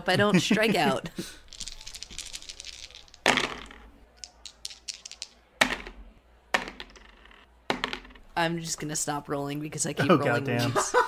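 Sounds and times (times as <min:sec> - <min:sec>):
dice rattling: 0:01.4 - 0:06.0, 0:06.6 - 0:08.2
dice knocking sharply: 0:03.1 - 0:08.2.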